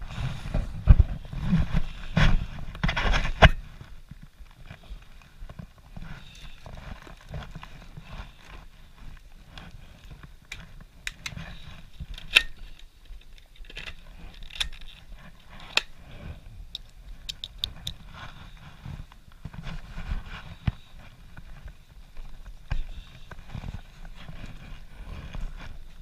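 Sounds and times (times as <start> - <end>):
objects clicking and scraping in hand: 6.2 - 18.4.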